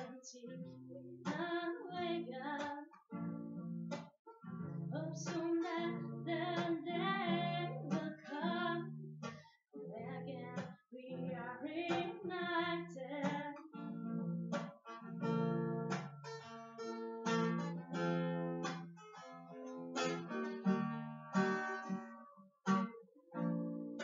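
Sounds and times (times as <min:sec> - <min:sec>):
woman singing: 0:00.0 - 0:03.0, 0:04.9 - 0:09.0, 0:09.8 - 0:13.8
acoustic guitar strumming: 0:00.0 - 0:24.0.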